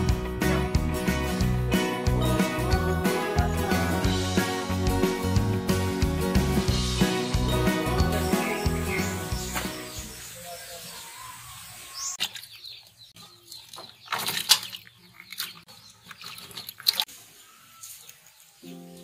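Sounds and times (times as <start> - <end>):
vegetables splashing in water: 13.7 - 17.1.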